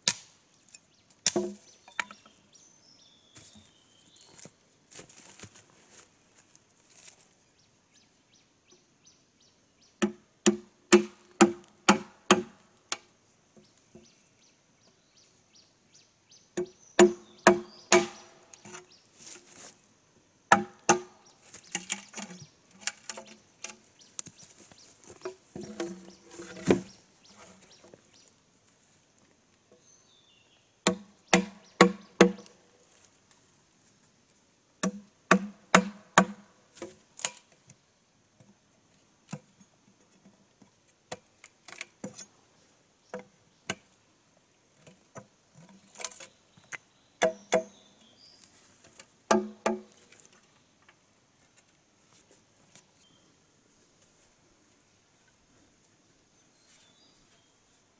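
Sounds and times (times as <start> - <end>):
machete chopping bamboo: 0.0 - 0.4, 1.2 - 2.1, 10.0 - 13.0, 16.6 - 18.4, 20.5 - 23.8, 25.2 - 26.9, 30.9 - 32.5, 34.8 - 37.4, 47.2 - 47.7, 49.3 - 50.0.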